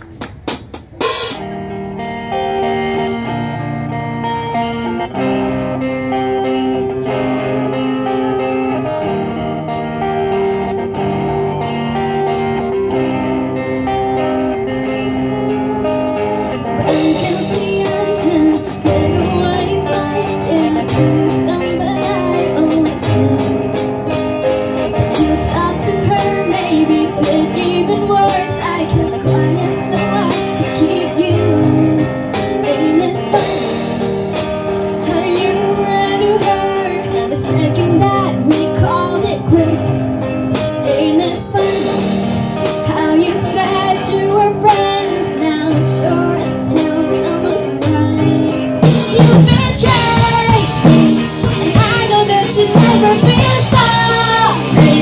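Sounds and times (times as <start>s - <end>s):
drum kit beat: 0.0s - 1.8s, 16.8s - 30.6s, 31.6s - 39.0s, 41.6s - 43.9s, 46.8s - 55.0s
guitar: 0.0s - 55.0s
person singing: 5.0s - 24.0s, 24.9s - 34.0s, 35.0s - 55.0s.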